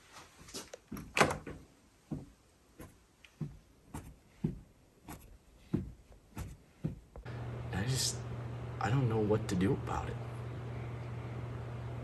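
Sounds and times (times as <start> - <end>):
soft evenly spaced thuds: 0.9 - 7.3.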